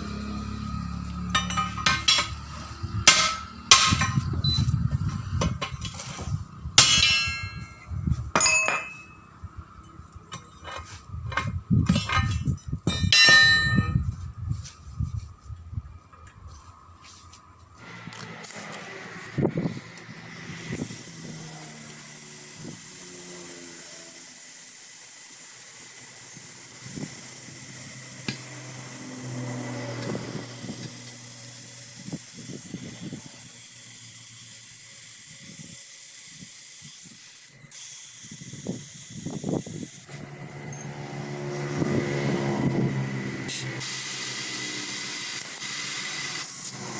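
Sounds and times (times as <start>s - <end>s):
compressed air hissing: 17.8s - 40.4s, 42.6s - 46.9s.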